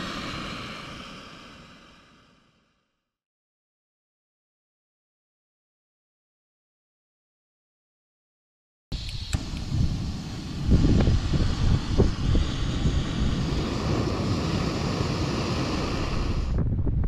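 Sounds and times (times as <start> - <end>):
gas stove burner hissing: 0.0 - 2.4, 8.9 - 16.6
wind buffeting microphone: 9.3 - 17.0.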